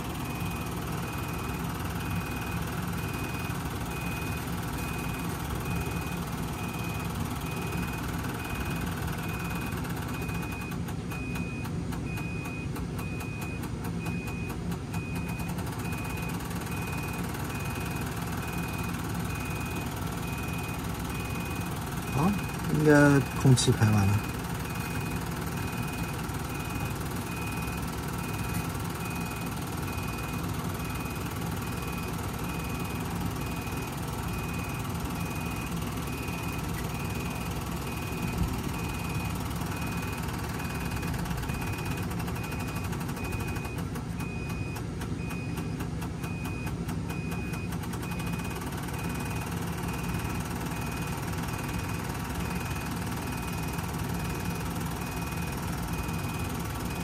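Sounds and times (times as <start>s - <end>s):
diesel engine running: 0.0s - 57.0s
electronic beep: 15.1s - 45.7s.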